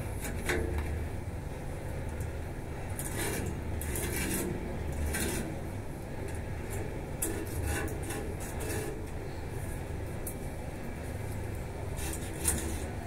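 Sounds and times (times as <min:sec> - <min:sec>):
hands scraping iron railing: 0:03.0 - 0:05.6, 0:06.7 - 0:09.2, 0:11.9 - 0:13.0.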